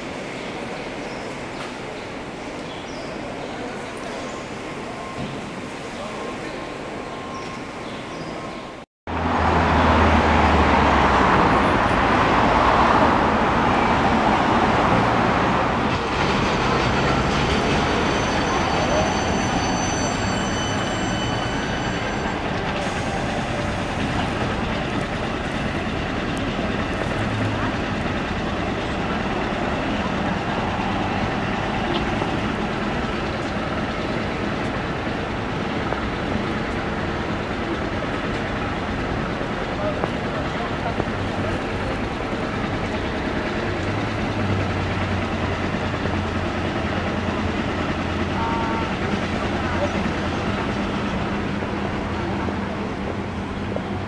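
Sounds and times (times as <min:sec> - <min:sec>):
city traffic noise: 0:00.0 - 0:54.0
tram running on rails: 0:00.0 - 0:54.0
passing cars: 0:09.1 - 0:19.6
heavy vehicle engine hum: 0:22.4 - 0:54.0.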